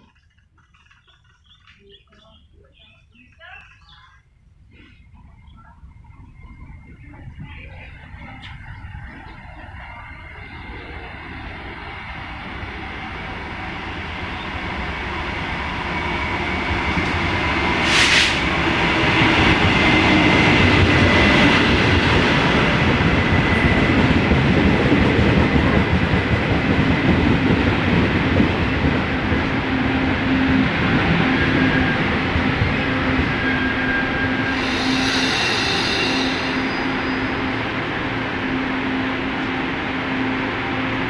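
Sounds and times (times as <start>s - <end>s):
train rumbling past: 4.7s - 41.0s
short sharp hiss: 17.8s - 18.5s
thin high whine: 33.4s - 37.5s.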